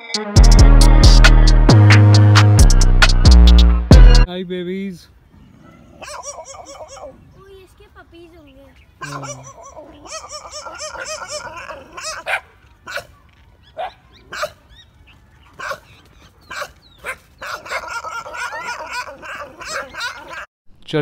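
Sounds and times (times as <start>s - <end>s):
dogs yelping: 5.4s - 7.6s, 9.0s - 20.5s
dogs barking sharply: 5.6s - 7.2s, 9.0s - 14.8s, 15.4s - 20.5s.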